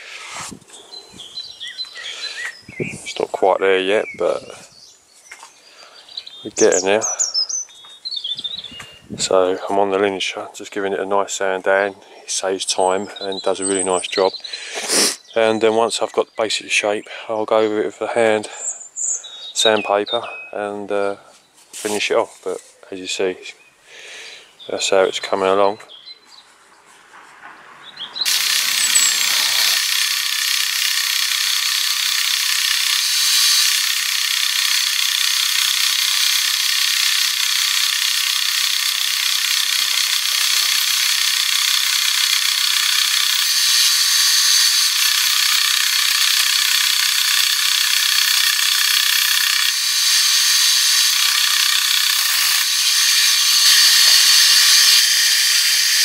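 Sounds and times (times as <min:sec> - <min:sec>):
belt sander on wood: 0:00.0 - 0:00.6, 0:28.2 - 0:56.0.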